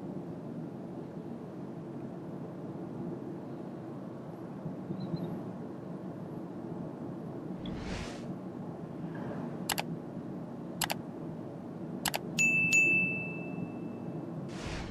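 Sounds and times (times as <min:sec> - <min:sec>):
bell ding: 0:12.4 - 0:14.1.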